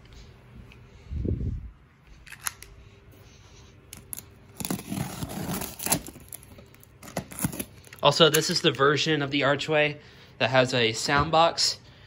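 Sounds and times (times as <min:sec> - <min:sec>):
knife slicing packing tape: 0:04.0 - 0:06.4.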